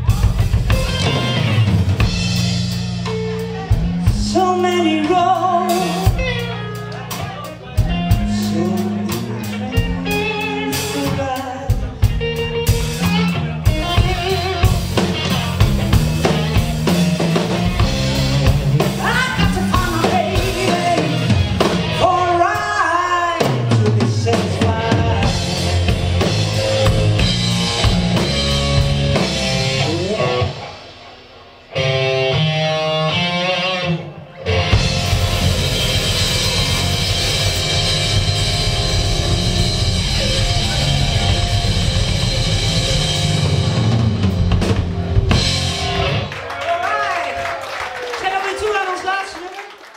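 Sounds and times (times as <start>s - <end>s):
drum kit: 0.0s - 33.2s, 34.5s - 46.8s
bass guitar: 0.0s - 47.4s
electric guitar: 0.0s - 48.0s
woman singing: 4.0s - 6.5s, 8.3s - 12.0s, 18.9s - 25.6s.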